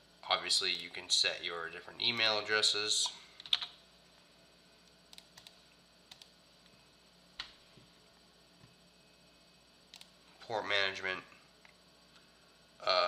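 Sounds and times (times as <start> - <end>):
keyboard and mouse clicks: 3.4 - 3.8, 5.1 - 6.3, 9.9 - 10.1.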